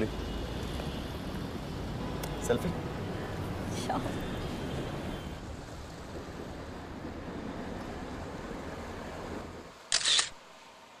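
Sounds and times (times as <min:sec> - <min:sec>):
phone camera shutter click: 0:09.9 - 0:10.4.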